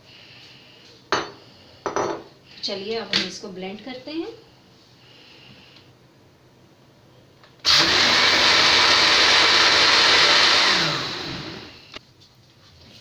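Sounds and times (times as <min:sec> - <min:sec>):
blender running: 0:07.6 - 0:12.0.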